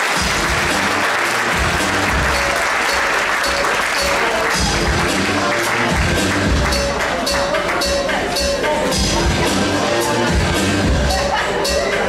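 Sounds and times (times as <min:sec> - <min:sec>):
audience applauding: 0:00.0 - 0:07.9
dance music with heavy bass: 0:00.1 - 0:12.0.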